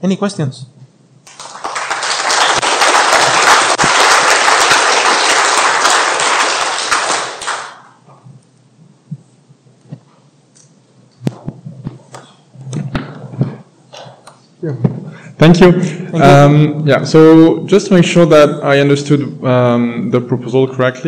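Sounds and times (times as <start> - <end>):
audience applauding: 1.3 - 8.0.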